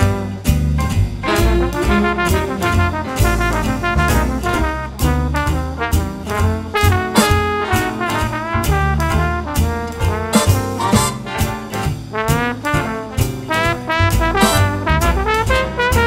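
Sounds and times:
drum kit played with sticks: 0.0s - 16.0s
brass section playing chords: 1.3s - 16.0s
drum and cymbal hits: 6.9s - 8.3s, 10.4s - 12.4s, 14.3s - 14.9s.

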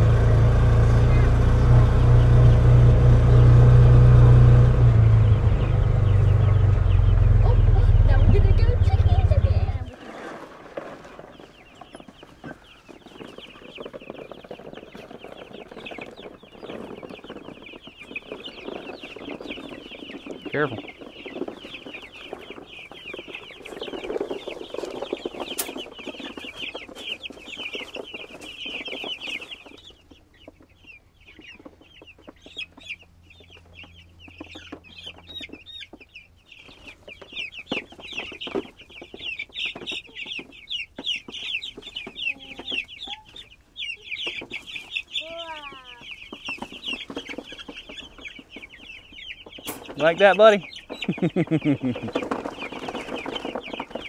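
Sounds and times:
chicks peeping shrilly: 0.0s - 54.0s
rustling noise: 9.6s - 29.8s.

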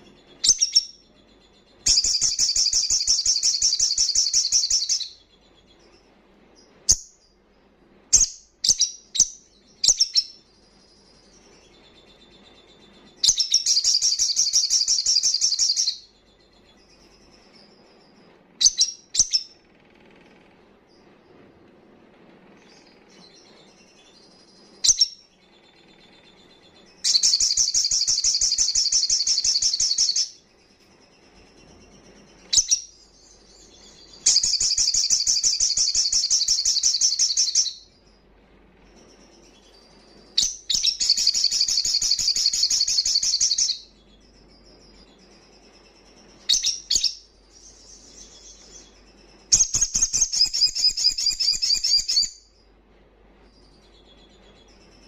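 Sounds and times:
sunbird trilling: 27.0s - 30.4s, 39.4s - 43.9s.

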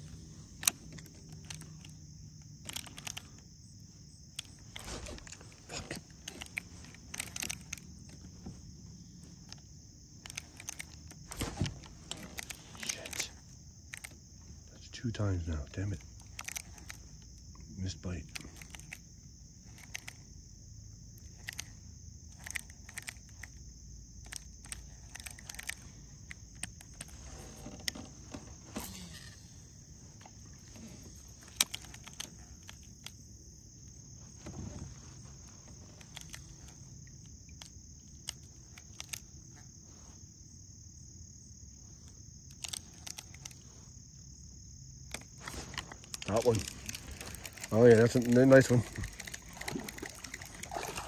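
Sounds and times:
high-pitched insect drone: 27.6s - 34.2s, 35.1s - 51.0s
small clicks and knocks: 30.2s - 33.2s.

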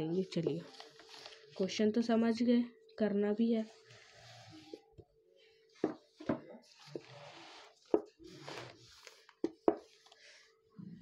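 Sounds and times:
paper rustling: 0.2s - 1.7s.

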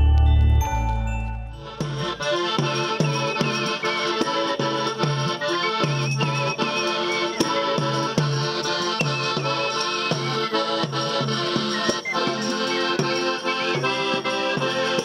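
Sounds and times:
bass notes: 0.0s - 2.2s
accordion playing: 0.0s - 15.0s.

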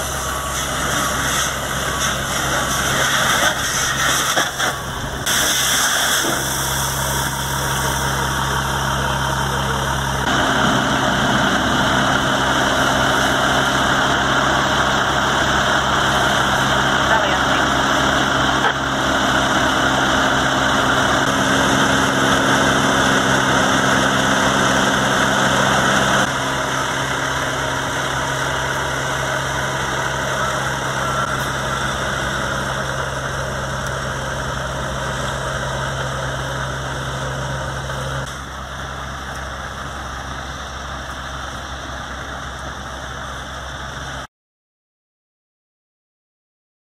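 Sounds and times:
diesel engine running: 0.0s - 44.3s
hiss: 0.5s - 6.9s.

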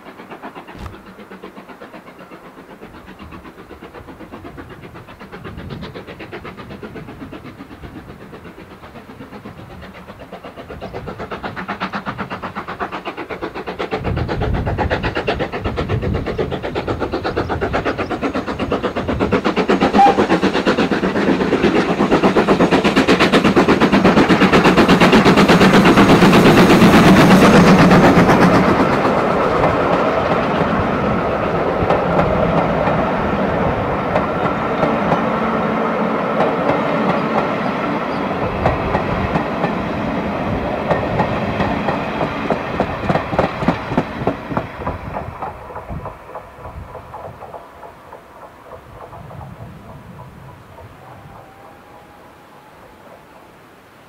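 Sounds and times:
train coaches clickety-clack: 0.0s - 53.6s
steam engine exhaust beats: 0.0s - 53.8s.

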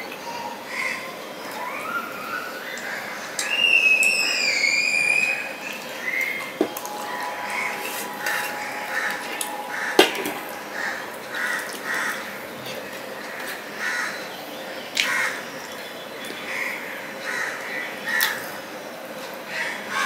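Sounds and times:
crows cawing: 6.5s - 12.4s, 13.2s - 14.2s, 15.0s - 15.5s, 16.5s - 18.6s.

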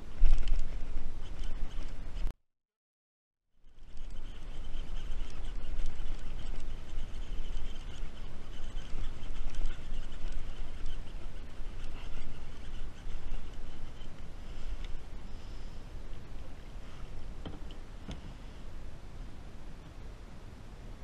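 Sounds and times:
wind rumbling on microphone: 0.0s - 2.3s, 3.6s - 21.0s.

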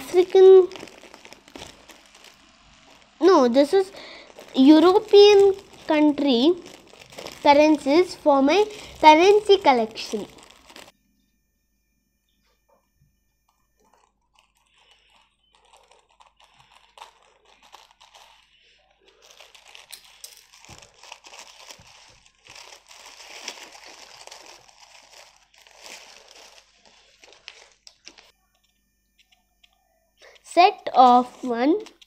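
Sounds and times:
paper banknotes rustling: 0.0s - 10.9s, 13.8s - 28.3s
plastic packet crinkling: 0.0s - 10.9s, 13.8s - 28.3s
scissors cutting plastic: 0.0s - 10.9s, 13.8s - 28.3s.

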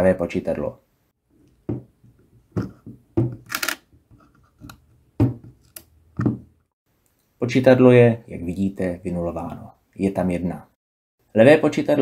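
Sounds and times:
camera dial clicking and scraping: 3.4s - 3.9s.

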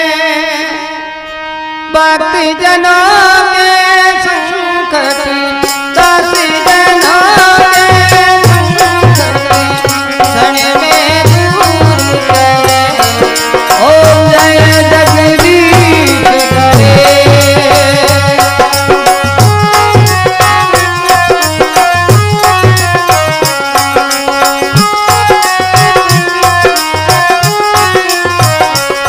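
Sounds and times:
sustained melody line: 0.0s - 29.0s
rattling hand percussion: 5.6s - 29.0s
hand drum beat: 7.6s - 29.0s.

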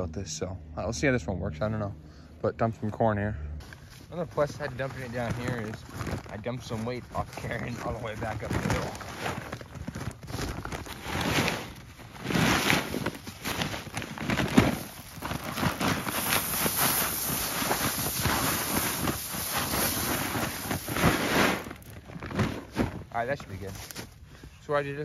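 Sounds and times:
corn kernels pouring onto snow: 4.2s - 9.2s, 10.8s - 21.9s.

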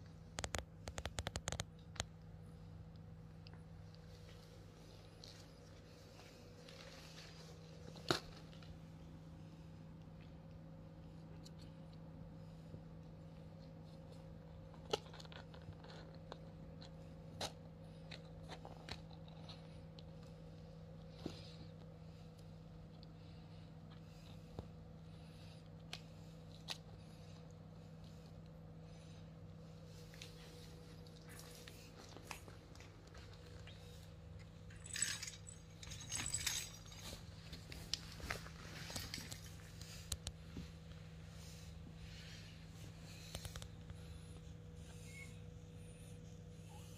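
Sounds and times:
faint steady hum: 0.0s - 46.9s
small bell jingling: 34.7s - 37.2s.

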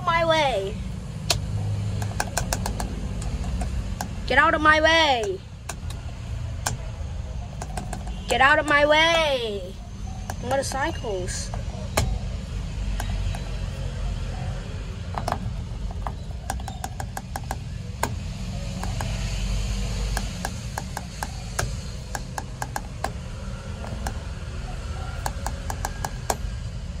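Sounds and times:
horn button clicks and taps: 2.0s - 4.3s, 5.2s - 6.0s, 7.6s - 9.3s, 13.0s - 13.7s, 15.2s - 19.4s, 20.0s - 23.2s, 23.8s - 24.2s, 25.2s - 26.4s.

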